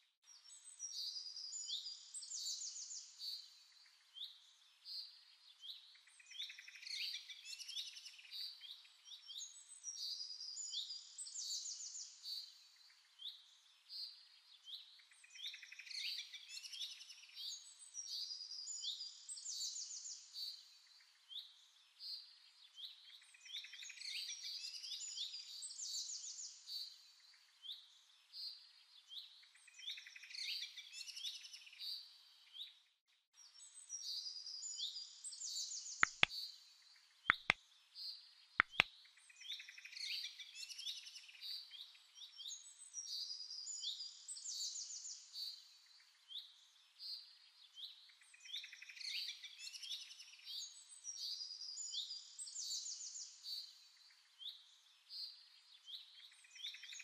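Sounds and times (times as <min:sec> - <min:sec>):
sharp double clicks: 0:36.0 - 0:36.3, 0:37.3 - 0:37.6, 0:38.6 - 0:38.9.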